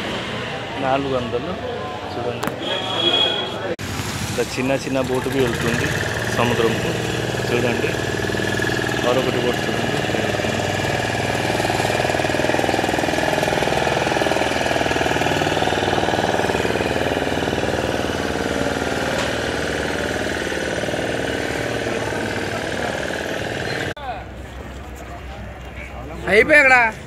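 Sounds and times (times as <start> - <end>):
boat engine running: 4.8 - 24.0.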